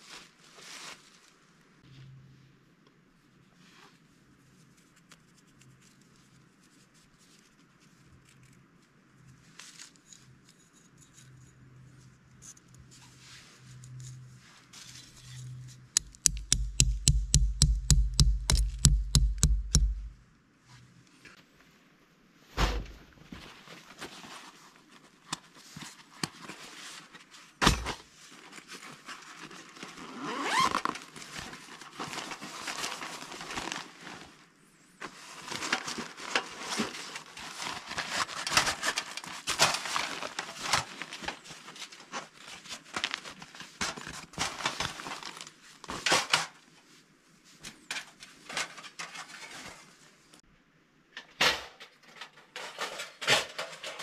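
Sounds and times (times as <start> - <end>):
bag straps and buckles handled: 16.0 - 20.2, 30.0 - 31.0
sharp clicks and knocks: 16.0 - 20.2
plastic wrapping rustling: 28.4 - 34.4, 35.0 - 46.0.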